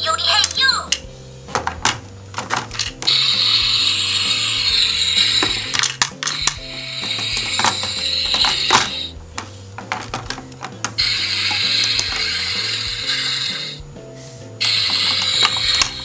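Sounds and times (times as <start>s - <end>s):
plastic toy clicks and knocks: 0.4s - 9.1s, 9.8s - 13.5s, 14.6s - 16.0s
toy sizzle sound effect: 3.0s - 9.2s, 10.9s - 13.8s, 14.6s - 16.0s.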